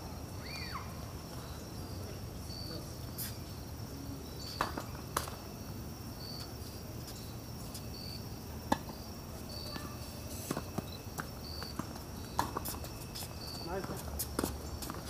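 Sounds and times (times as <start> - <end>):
crickets chirping: 0.0 - 15.0
tennis balls struck and bouncing: 9.6 - 15.0.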